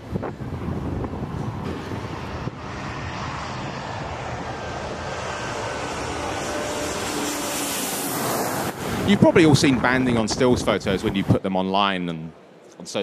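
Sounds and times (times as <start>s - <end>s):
jet airliner engines: 0.0s - 13.0s.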